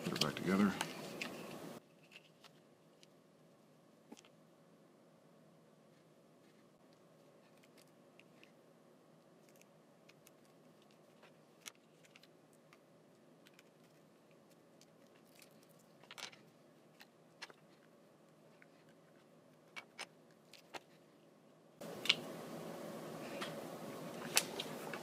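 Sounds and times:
small clicks and rustles of wires: 0:00.0 - 0:03.2, 0:05.9 - 0:08.6, 0:09.4 - 0:21.1.

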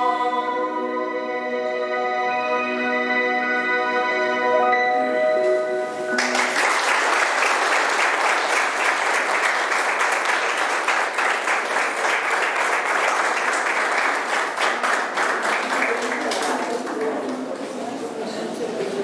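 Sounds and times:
audience applause: 0:06.2 - 0:17.5.

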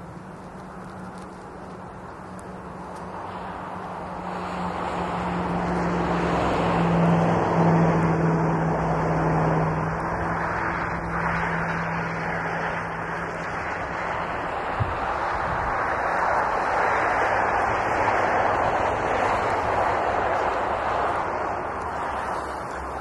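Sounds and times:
vehicle passing on highway: 0:00.0 - 0:23.0.

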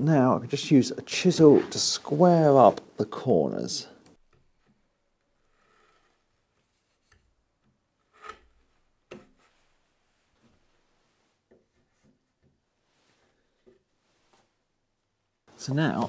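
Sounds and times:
chisel scraping wood: 0:04.4 - 0:07.2, 0:08.0 - 0:09.5.

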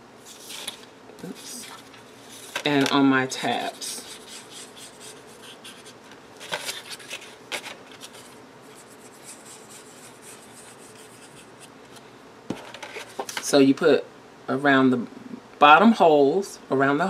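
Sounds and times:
paper handling noise: 0:00.2 - 0:13.5.

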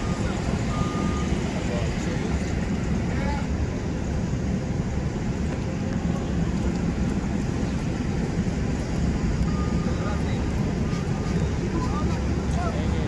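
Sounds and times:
bus and car engines running: 0:00.0 - 0:13.0.

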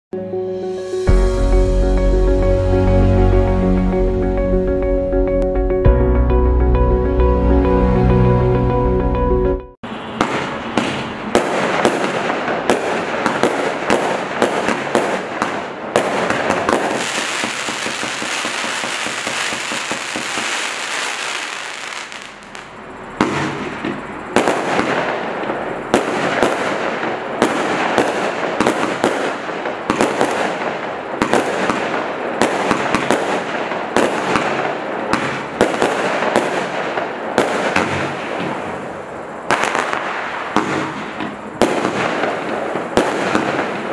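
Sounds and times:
firework aerial bursts: 0:09.9 - 0:43.9
firework crackle: 0:09.9 - 0:43.9.

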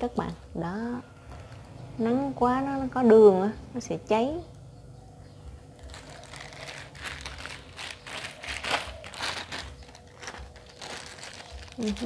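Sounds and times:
plastic glove crinkling: 0:05.7 - 0:12.0.

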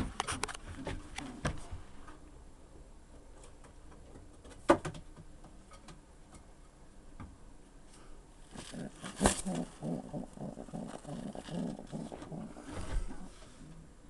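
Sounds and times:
pigeons cooing: 0:08.6 - 0:13.9.

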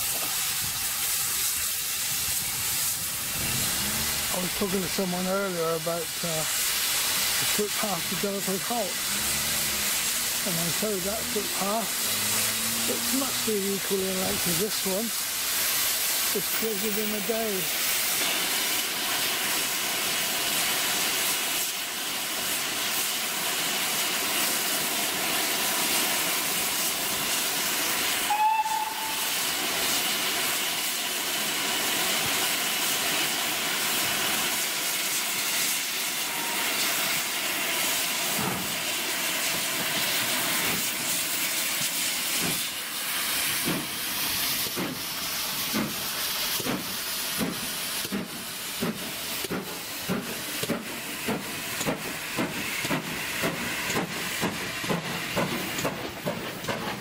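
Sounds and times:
steam locomotive hissing: 0:00.0 - 0:57.0
locomotive exhaust chuffs: 0:00.3 - 0:21.8, 0:31.4 - 0:57.0
steam whistle: 0:11.9 - 0:13.6, 0:28.2 - 0:29.6, 0:36.1 - 0:37.2.

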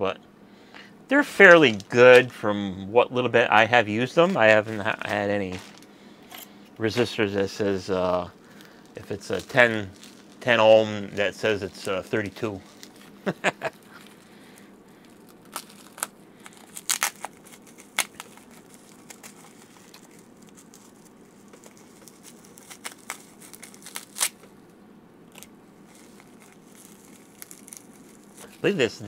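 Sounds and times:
plastic bag crinkling and tearing: 0:01.4 - 0:02.3, 0:04.4 - 0:05.9, 0:08.4 - 0:24.5, 0:25.3 - 0:28.9.

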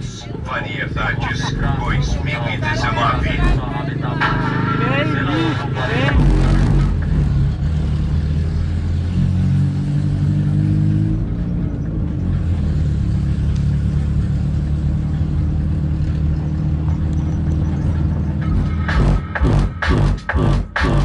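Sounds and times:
bass from car sound system: 0:00.0 - 0:09.2, 0:10.2 - 0:21.0
vehicle engine rumble: 0:00.0 - 0:21.0.

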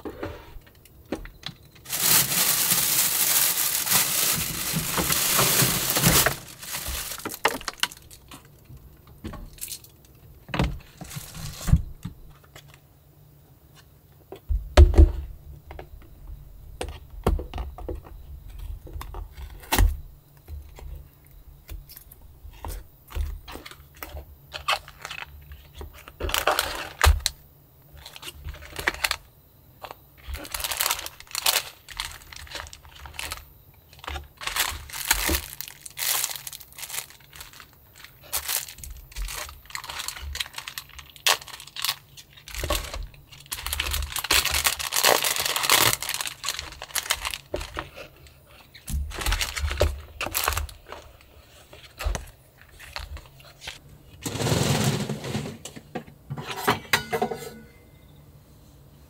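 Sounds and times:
plastic packets crinkling: 0:01.4 - 0:08.6, 0:10.8 - 0:11.8, 0:24.5 - 0:27.4, 0:29.8 - 0:53.8.

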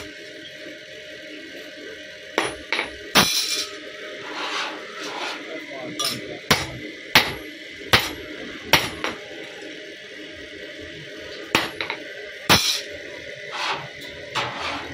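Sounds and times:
hammer striking steel blade: 0:06.0 - 0:08.2, 0:12.5 - 0:12.9.

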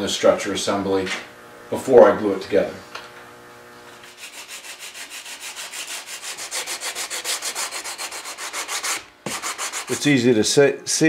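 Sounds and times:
sandpaper rubbing on wood: 0:04.0 - 0:10.2.

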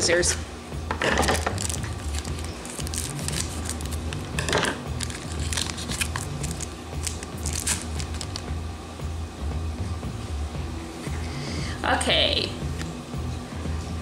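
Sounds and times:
background music with bass: 0:00.0 - 0:14.0
scissors snipping foil: 0:01.3 - 0:04.2, 0:05.0 - 0:08.5
foil wrapper crinkling: 0:01.3 - 0:04.3, 0:04.9 - 0:08.5.

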